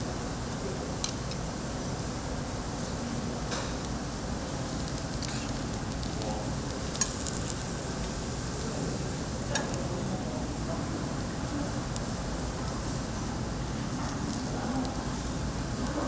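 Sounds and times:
food sizzling on a grill: 1.1 - 16.0
sharp crackles: 3.9 - 8.7.

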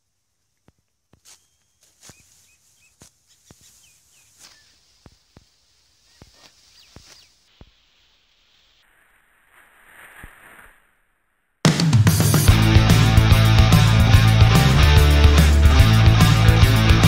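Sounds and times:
sickle cutting rice stalks: 1.2 - 10.8
bird chirping: 1.3 - 5.2, 5.9 - 8.8.

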